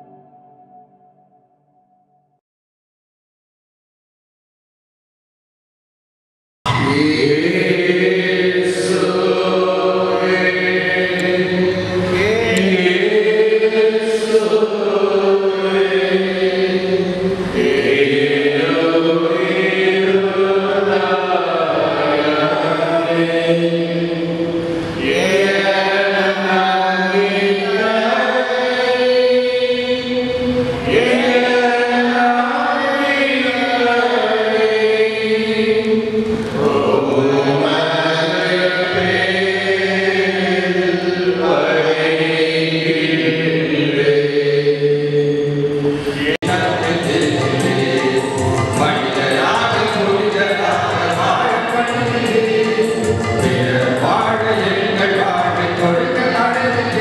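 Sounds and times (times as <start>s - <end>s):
voices singing devotional chant: 6.7s - 57.0s.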